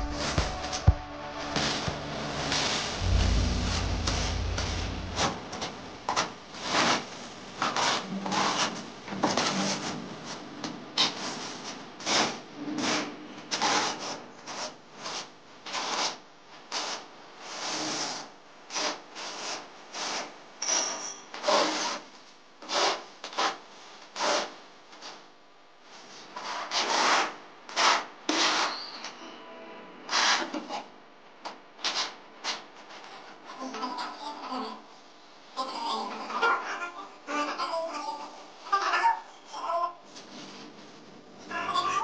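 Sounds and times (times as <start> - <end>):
trowel scraping adhesive on wall: 26.4 - 28.8.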